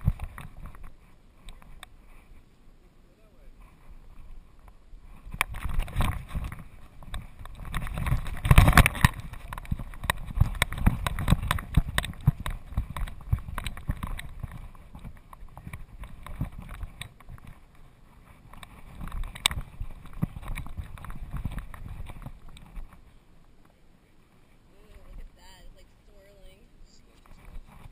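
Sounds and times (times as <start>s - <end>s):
harness jostling: 3.8s - 23.1s
camera handling rumble: 4.2s - 23.0s.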